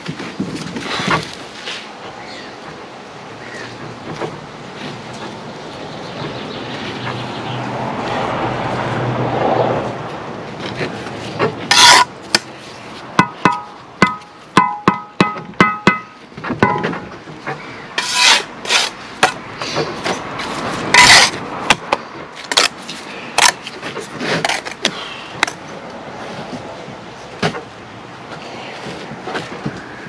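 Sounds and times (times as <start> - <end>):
trowel scraping mortar: 11.6 - 12.5, 18.0 - 19.4, 20.7 - 21.8
trowel taps ringing metallic: 13.2 - 16.9.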